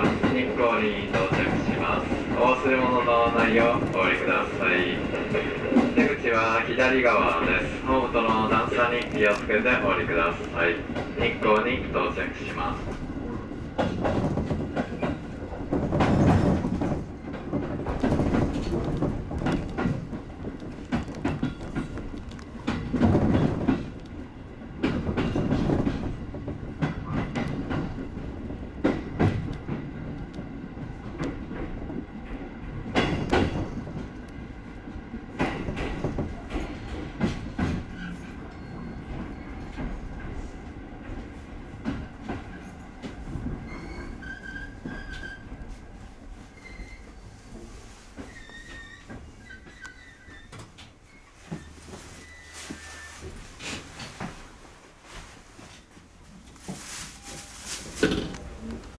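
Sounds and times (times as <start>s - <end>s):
train wheels clattering over rails: 0.0s - 54.8s
high squeal: 52.2s - 53.2s.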